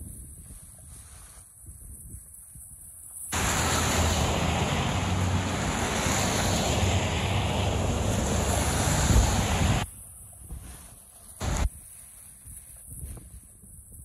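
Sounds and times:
wind buffeting microphone: 0:03.3 - 0:11.8, 0:12.4 - 0:14.0.

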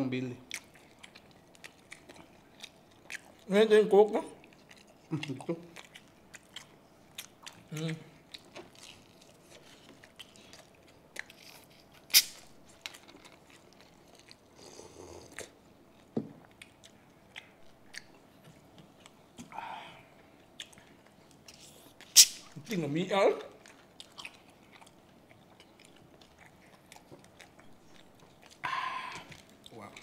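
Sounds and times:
chewing crispy food: 0:00.2 - 0:30.0.

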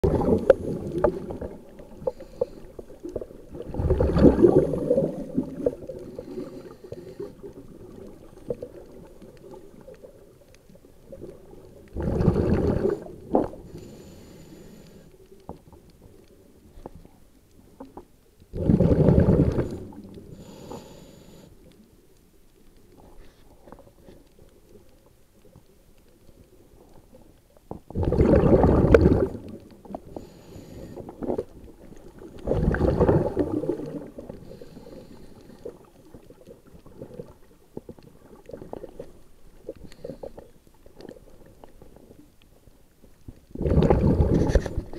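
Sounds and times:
underwater bubbles rushing: 0:00.0 - 0:14.1, 0:17.7 - 0:20.6, 0:26.7 - 0:42.4, 0:43.2 - 0:44.9
faint clicking and crackling: 0:00.0 - 0:44.9.

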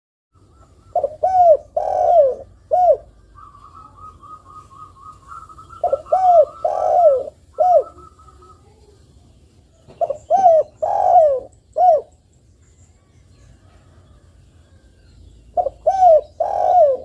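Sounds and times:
dove cooing: 0:00.4 - 0:08.9, 0:09.9 - 0:12.2, 0:15.5 - 0:17.0.

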